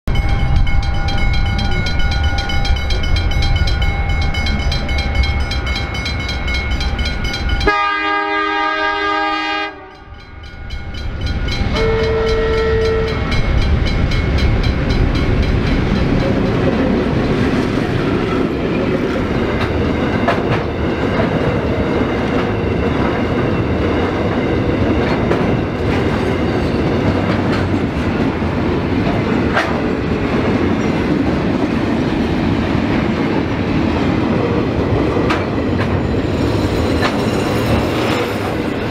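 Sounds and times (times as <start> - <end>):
freight train rumbling: 0.1 - 38.9
locomotive horn: 7.6 - 10.2, 11.7 - 13.3.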